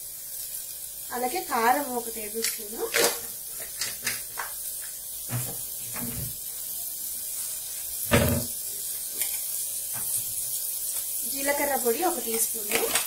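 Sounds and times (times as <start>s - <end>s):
faint hiss: 0.0s - 13.0s
loud thump: 8.1s - 8.5s.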